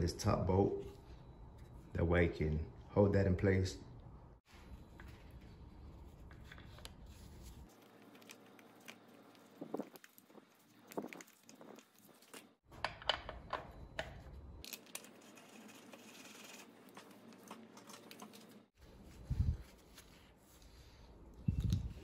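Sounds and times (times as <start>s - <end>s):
gloved hands rubbing: 15.2s - 20.8s.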